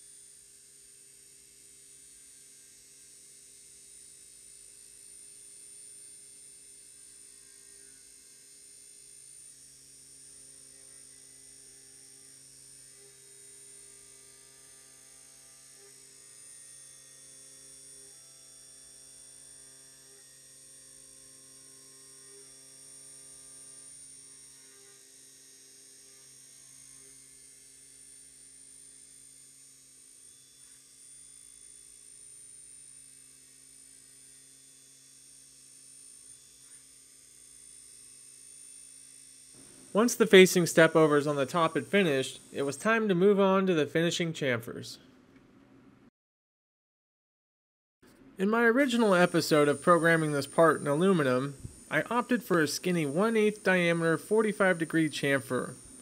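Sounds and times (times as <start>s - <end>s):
faint steady hum of held tones: 0.0s - 43.5s.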